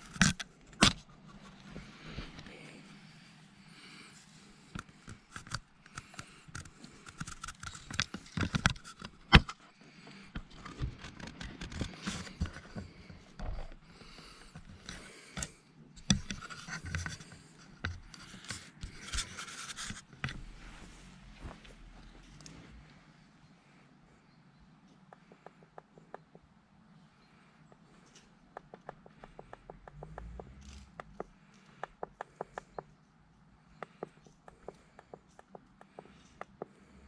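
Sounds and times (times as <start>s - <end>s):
sharp clicks: 4.7s - 9.6s, 27.7s - 32.9s, 33.7s - 36.8s
rubbing against microphone: 16.0s - 21.8s.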